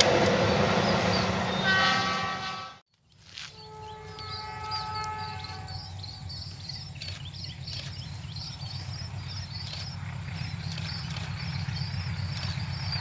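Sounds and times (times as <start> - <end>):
distant locomotive horn: 0.0 - 2.8, 3.4 - 6.7.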